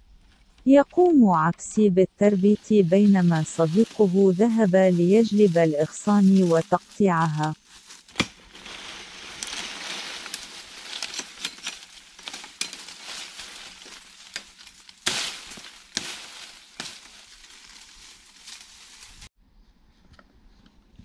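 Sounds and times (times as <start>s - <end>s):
leaves and twigs rustling: 2.3s - 19.3s
sticks snapping: 8.1s - 19.2s.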